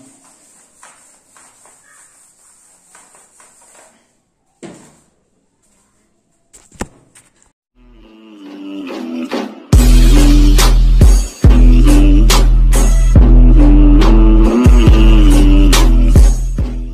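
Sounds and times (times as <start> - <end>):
duster wiping whiteboard: 0.0 - 6.2.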